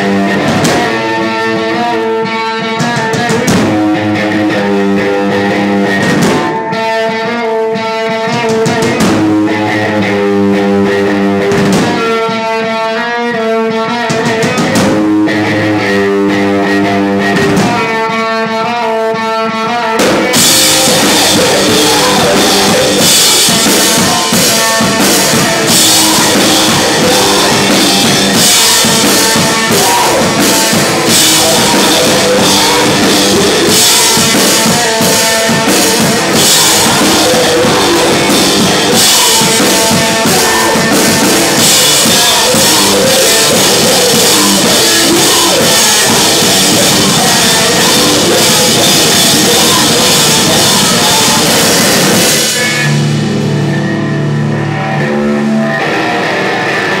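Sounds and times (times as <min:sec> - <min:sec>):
drum kit: 0:00.0 - 0:18.8, 0:19.8 - 0:57.0
electric guitar: 0:00.0 - 0:57.0.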